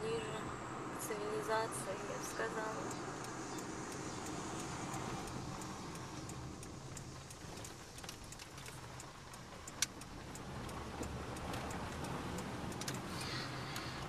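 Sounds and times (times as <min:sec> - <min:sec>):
car road and engine hum: 0:00.0 - 0:14.0
small clicks: 0:03.2 - 0:14.0.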